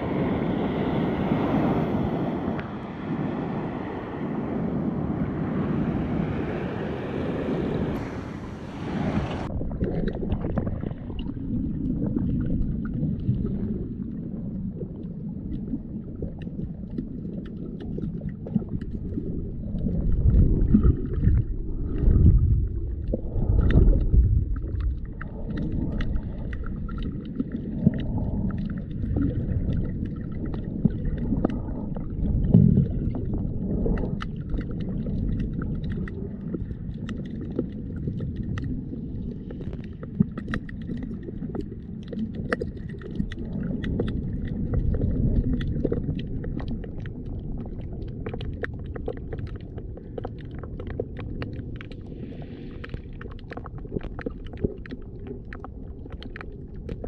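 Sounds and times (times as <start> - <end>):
underwater rumble of moving water: 0.0 - 57.0
faint crackling clicks: 14.8 - 57.0.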